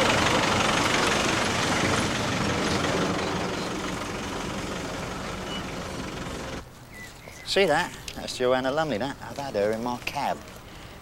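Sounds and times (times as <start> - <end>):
car engine and road noise: 0.0 - 7.0.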